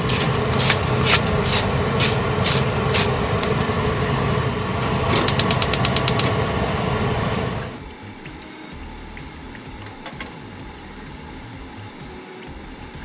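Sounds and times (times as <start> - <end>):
steady background hum: 0.0 - 13.0
sharp clicks: 5.1 - 6.4.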